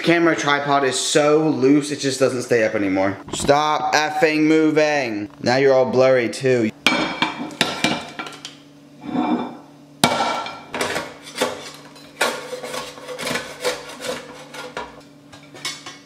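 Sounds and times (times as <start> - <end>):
spatula scraping metal baking sheet: 10.8 - 15.8.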